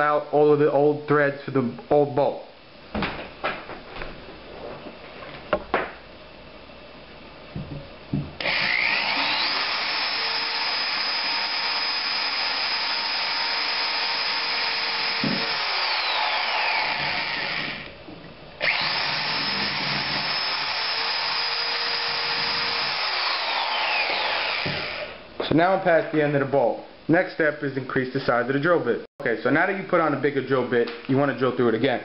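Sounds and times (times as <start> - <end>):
electric drill whining: 8.4 - 18.0, 18.6 - 25.2.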